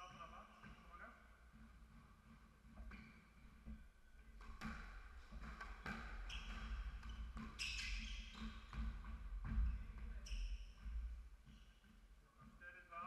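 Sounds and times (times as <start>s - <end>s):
shoes squeaking on wooden floor: 1.5s - 12.1s
squash ball hitting rackets and walls: 2.7s - 10.2s.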